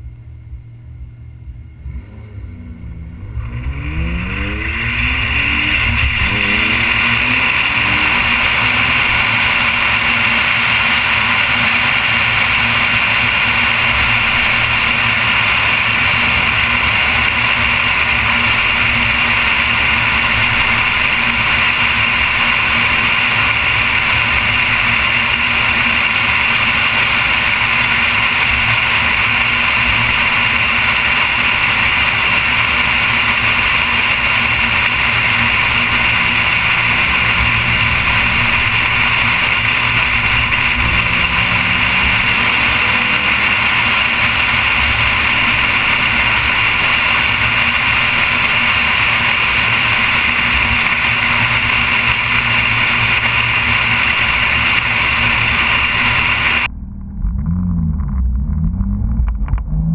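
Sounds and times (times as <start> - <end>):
faint car engine: 0.0 - 59.9
wind and road noise: 0.0 - 59.9.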